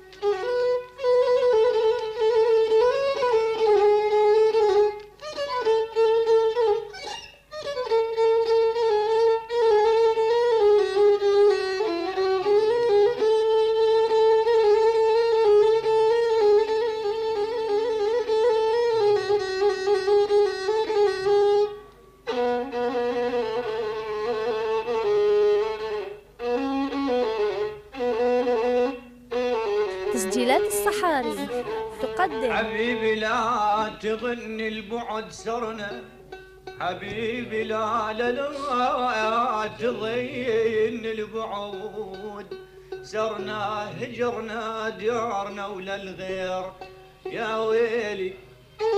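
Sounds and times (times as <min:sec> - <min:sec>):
solo violin melody: 0:00.0 - 0:30.2.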